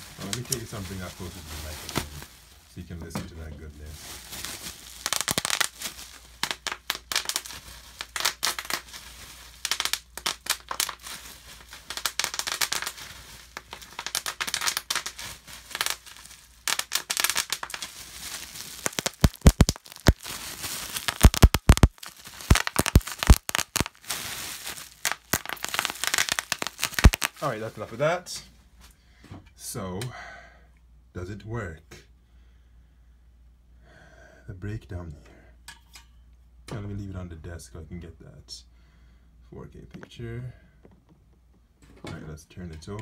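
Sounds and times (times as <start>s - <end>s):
bubble wrap crackling: 0.0s - 3.0s, 3.7s - 28.2s.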